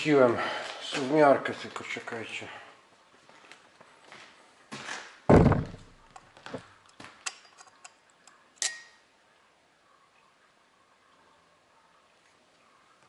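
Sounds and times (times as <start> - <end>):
heavy thump: 5.3 - 6.0.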